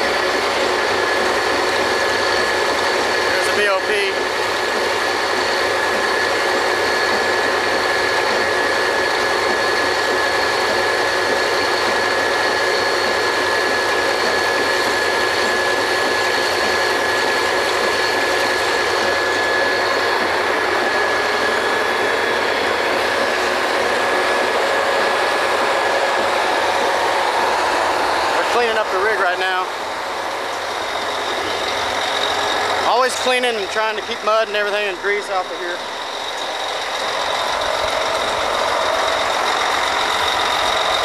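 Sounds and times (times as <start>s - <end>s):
drilling rig machinery din: 0.0s - 41.0s
high mechanical whine: 0.0s - 41.0s.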